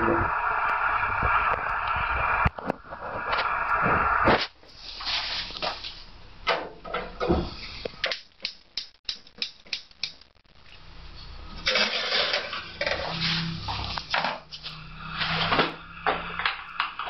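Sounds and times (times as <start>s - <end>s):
gas flame hissing: 0.0s - 6.3s, 11.4s - 17.0s.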